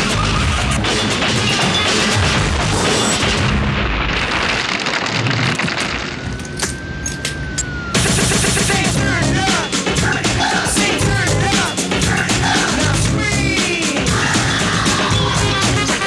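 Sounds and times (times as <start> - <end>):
thin held tone: 6.2 - 8.0
dance music: 8.0 - 16.0.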